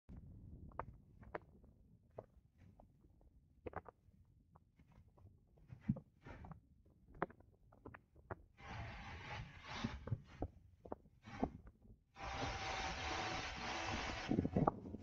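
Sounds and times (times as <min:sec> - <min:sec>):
wind buffeting microphone: 0:14.0 - 0:15.0.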